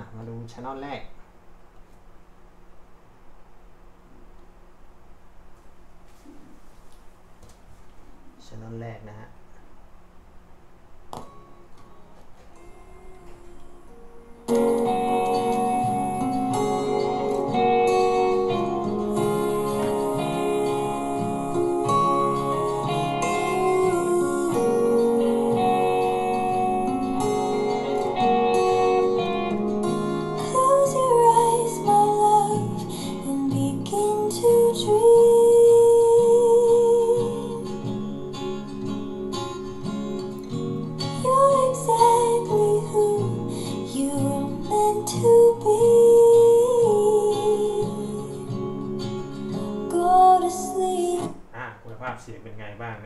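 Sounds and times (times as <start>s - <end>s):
guitar music: 11.1s - 51.5s
person singing: 12.6s - 38.4s, 41.2s - 48.8s, 49.9s - 51.7s.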